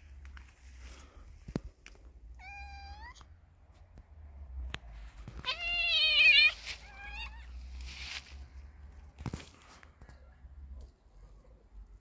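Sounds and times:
cat yowling: 2.4 - 3.2, 5.4 - 7.6.

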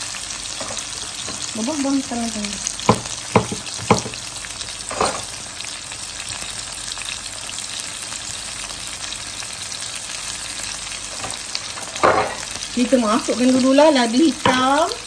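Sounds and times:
food sizzling in hot oil: 0.0 - 15.0
sharp knocks: 2.9 - 4.2.

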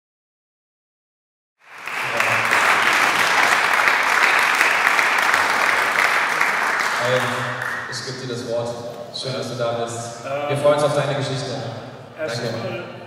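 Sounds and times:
audience applauding: 1.6 - 8.3.

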